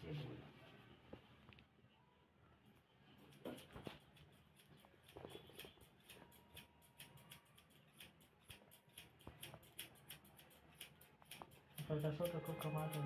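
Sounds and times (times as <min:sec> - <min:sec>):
scissors snipping hair: 0:03.2 - 0:13.0.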